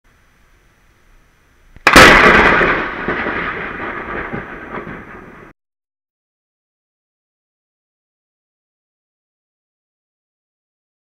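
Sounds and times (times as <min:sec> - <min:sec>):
faint hiss: 0:00.1 - 0:02.0
thunder crack and rumble: 0:01.8 - 0:05.5.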